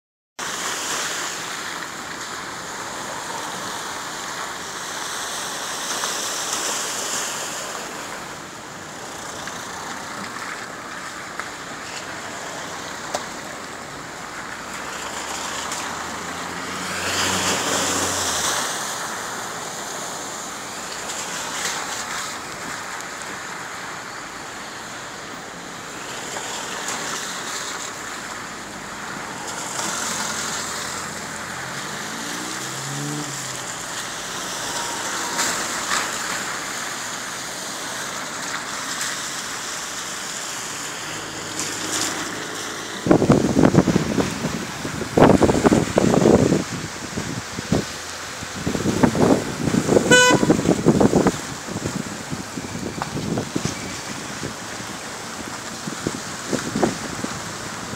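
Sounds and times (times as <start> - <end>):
cars driving through floodwater: 0.4 - 57.9
rushing water: 0.4 - 57.9
car engine passing: 12.2 - 20.3, 26.4 - 38.1, 40.4 - 46.8.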